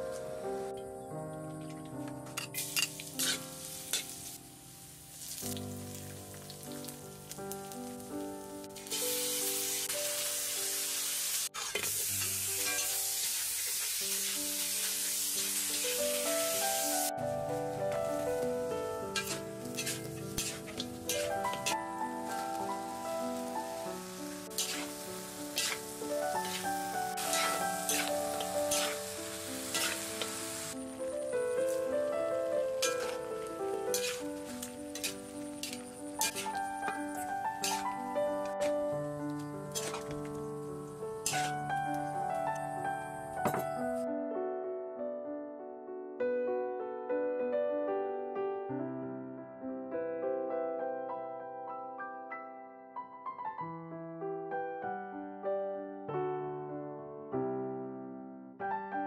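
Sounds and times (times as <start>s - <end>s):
background music with held notes: 0.0s - 10.8s, 14.4s - 44.6s
sharp crackles of frying: 1.6s - 44.0s
metal spatula scraping a pan: 2.4s - 4.3s, 11.5s - 14.2s, 19.1s - 22.5s, 24.5s - 30.8s, 32.8s - 38.8s, 39.7s - 40.2s, 41.2s - 41.6s
garlic sizzling in hot oil: 2.4s - 43.3s.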